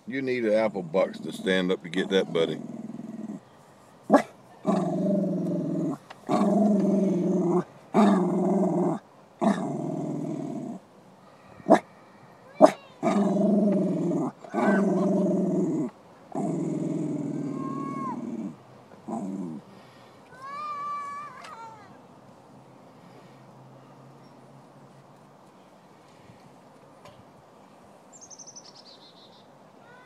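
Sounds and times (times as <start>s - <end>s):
dog growling: 0.4s - 3.5s, 4.1s - 10.8s, 12.6s - 19.7s
dog barking: 4.1s - 4.3s, 12.6s - 13.2s.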